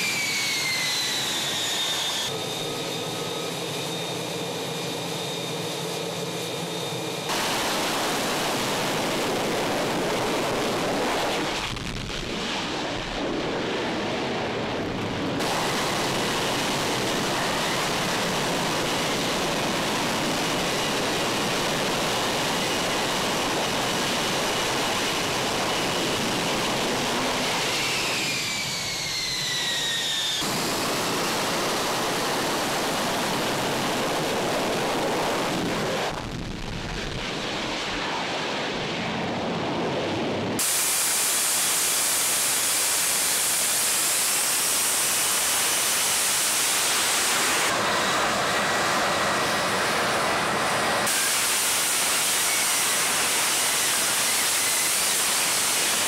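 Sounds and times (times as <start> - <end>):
falling whines: 0.0 - 11.8, 15.4 - 36.4, 46.4 - 55.3
jet engine roar: 0.0 - 56.0.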